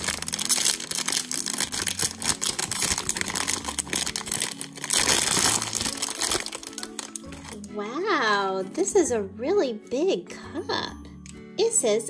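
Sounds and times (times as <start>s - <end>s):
foil packet crinkling: 0.0s - 7.6s.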